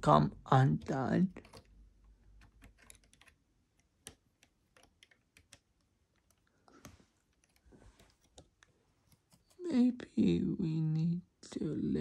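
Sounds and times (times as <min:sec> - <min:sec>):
plastic toy bricks clicking: 0:02.3 - 0:06.5.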